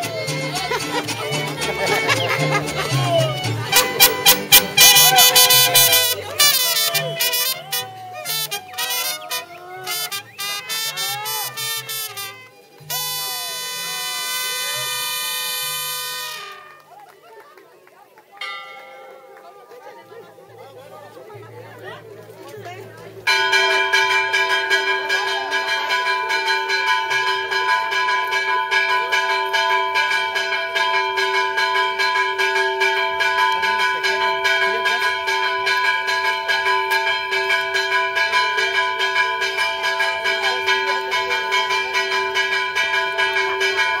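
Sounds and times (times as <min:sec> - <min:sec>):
church bell ringing rapidly: 0:18.4 - 0:20.2, 0:23.3 - 0:44.0.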